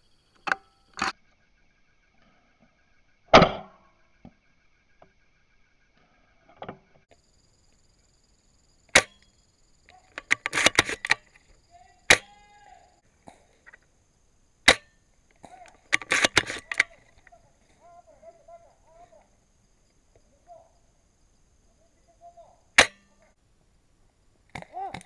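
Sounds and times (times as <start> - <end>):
airsoft gun shots: 8.9 - 9.2, 12.1 - 12.6, 14.6 - 15.0, 22.8 - 23.1.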